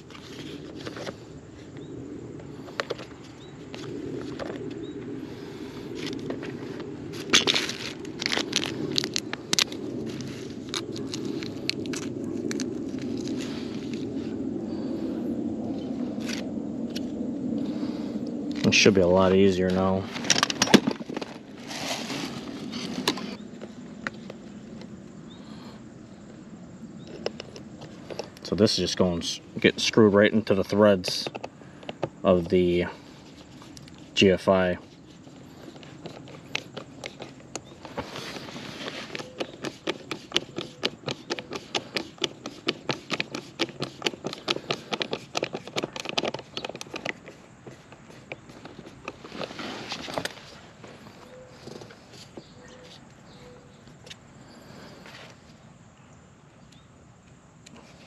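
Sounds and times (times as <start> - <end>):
plastic cover rustling scrape: 20.1 - 23.4, 33.2 - 52.4.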